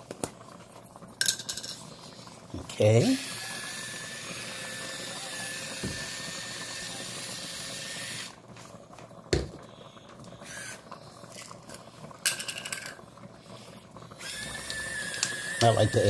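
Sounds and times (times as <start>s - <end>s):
soup boiling with hiss: 0.0s - 16.0s
pepper grinder clicking: 14.6s - 15.8s.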